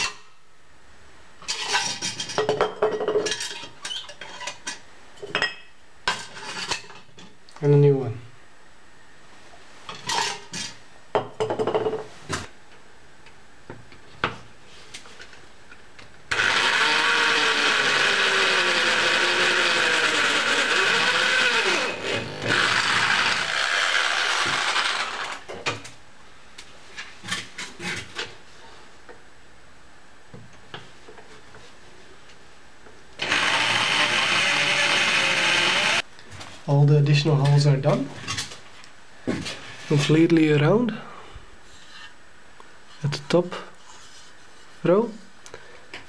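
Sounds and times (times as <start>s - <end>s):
electric drill boring metal: 16.3s - 25.4s, 33.2s - 36.0s.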